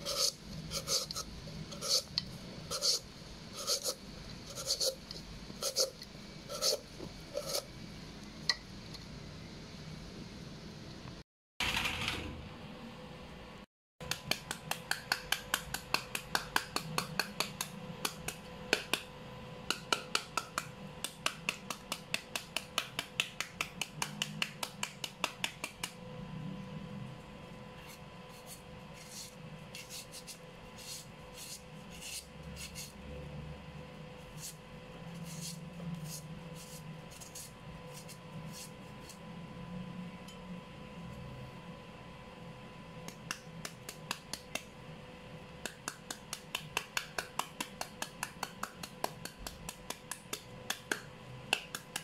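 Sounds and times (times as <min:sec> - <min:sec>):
knife chopping papaya: 0:14.0 - 0:19.1, 0:19.7 - 0:26.0, 0:45.6 - 0:52.0.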